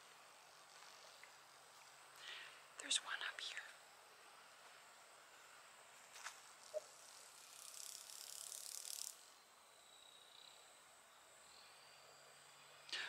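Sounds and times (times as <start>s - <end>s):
grasshopper raspy buzz: 6.2s - 10.6s.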